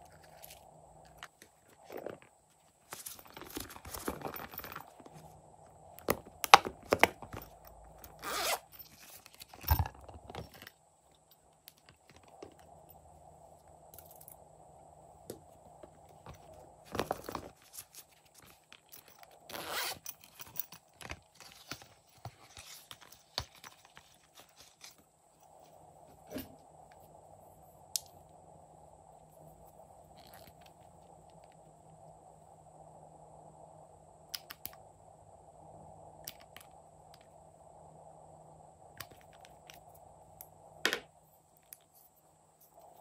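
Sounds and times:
silicone rustles: 0:00.0 - 0:10.8, 0:15.4 - 0:27.7
zipper being pulled: 0:08.0 - 0:09.8, 0:19.5 - 0:20.3.

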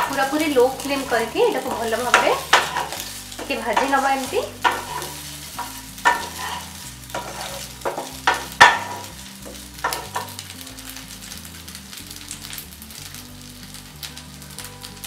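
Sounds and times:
spatula scraping frying pan: 0:00.0 - 0:10.6
oil sizzling and crackling: 0:00.0 - 0:15.0.

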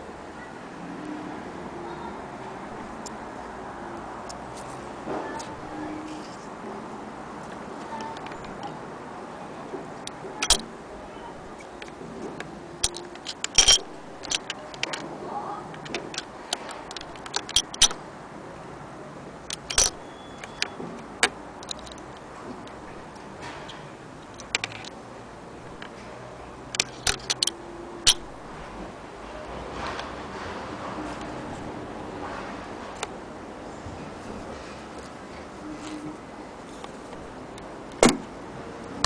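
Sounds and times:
fingers handling machine parts: 0:07.4 - 0:08.8, 0:10.0 - 0:10.7, 0:11.3 - 0:18.0, 0:19.4 - 0:25.0, 0:26.7 - 0:28.6, 0:34.3 - 0:38.3.

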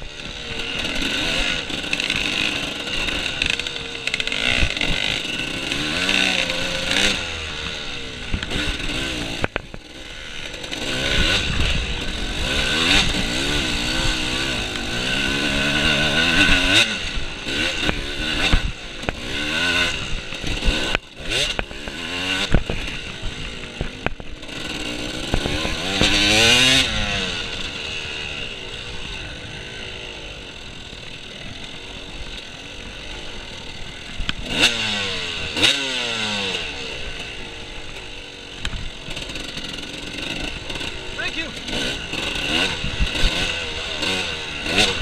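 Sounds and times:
dirt bike engine revving: 0:00.0 - 0:45.0.

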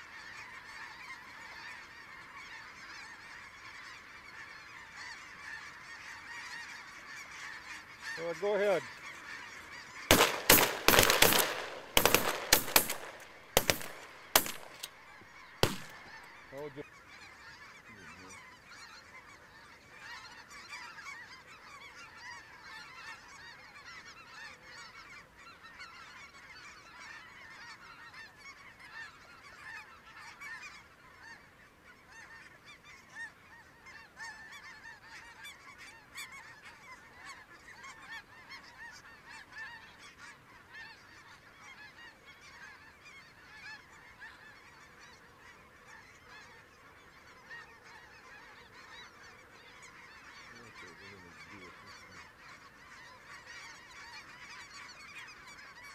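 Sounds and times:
geese honking: 0:00.0 - 0:55.9
shotguns firing: 0:10.1 - 0:15.0, 0:15.6 - 0:16.3.

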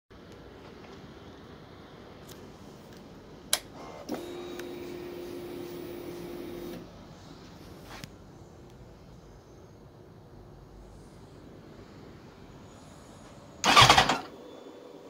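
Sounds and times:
fuel pump electric hum: 0:03.5 - 0:07.2.

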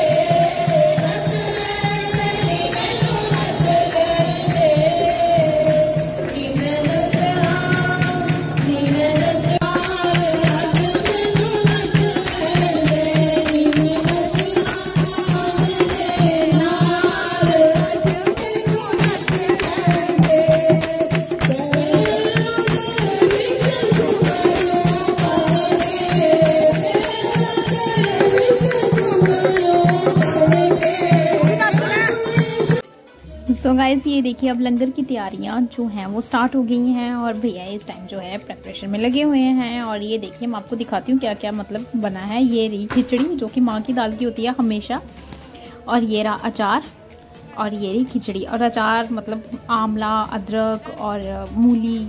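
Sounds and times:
women singing together: 0:00.0 - 0:32.8
percussion beat: 0:00.0 - 0:45.1
hand-clapping: 0:12.3 - 0:14.2.

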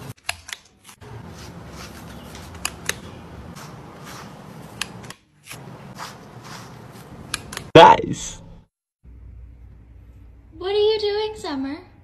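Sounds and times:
brush raking through fur: 0:00.9 - 0:04.9, 0:05.5 - 0:07.3.

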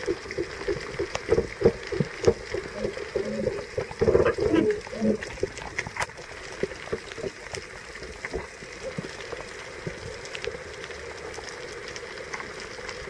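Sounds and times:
underwater clicks and pops: 0:00.0 - 0:08.5
steady hiss: 0:00.0 - 0:13.0.

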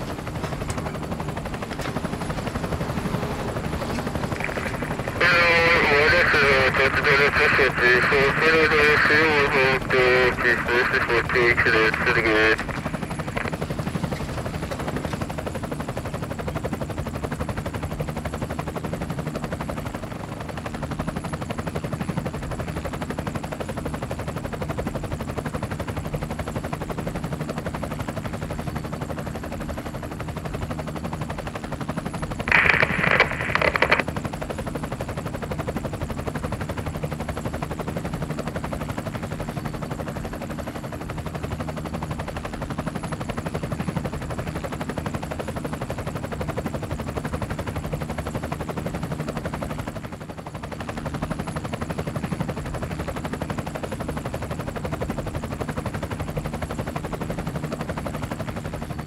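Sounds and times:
low mechanical hum: 0:00.0 - 0:05.2
dense even noise: 0:32.5 - 0:34.0.

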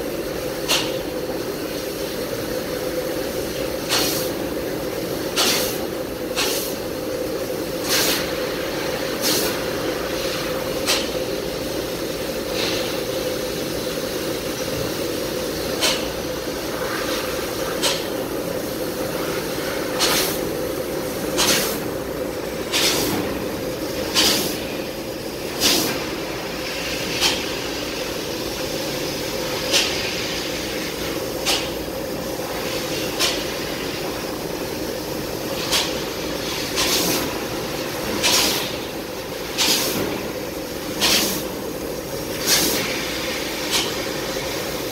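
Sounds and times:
steady machine drone: 0:00.0 - 0:42.3
short bursts of hissing: 0:03.9 - 0:04.3.

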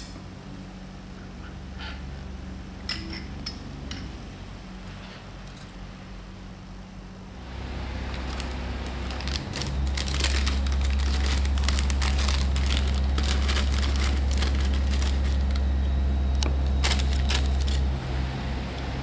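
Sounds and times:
steady low hum: 0:00.0 - 0:19.0
plastic bag crinkling: 0:07.6 - 0:15.8, 0:16.4 - 0:17.9.

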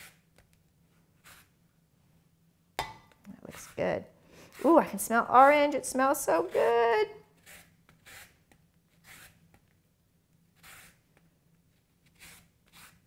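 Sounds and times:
peel scraping on a grater: 0:07.4 - 0:08.4, 0:09.0 - 0:09.4, 0:10.6 - 0:11.0, 0:12.1 - 0:13.0.

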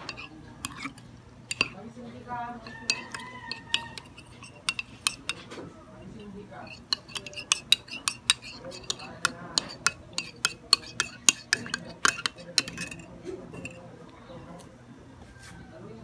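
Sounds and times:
metal spoon clinking in mug: 0:00.0 - 0:01.8, 0:02.6 - 0:05.5, 0:06.2 - 0:13.9.

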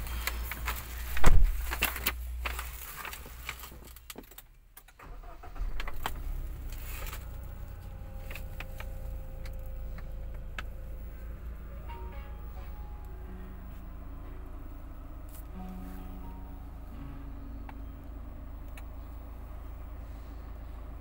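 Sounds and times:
engine starting and idling: 0:00.0 - 0:21.0
loud thump: 0:01.2 - 0:01.6.

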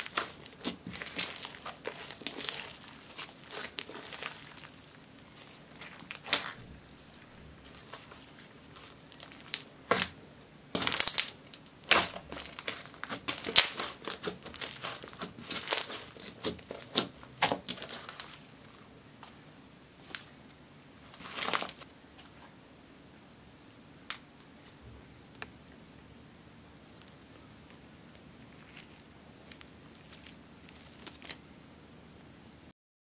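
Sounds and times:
slime crackling and squelching: 0:00.0 - 0:19.4, 0:21.0 - 0:21.9, 0:26.8 - 0:31.4.

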